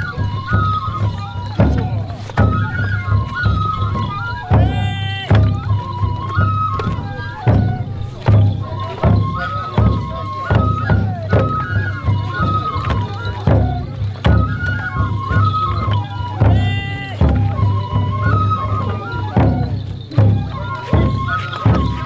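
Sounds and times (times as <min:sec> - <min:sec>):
high bamboo flute melody: 0:00.0 - 0:22.0
taiko drum beats: 0:00.0 - 0:22.0.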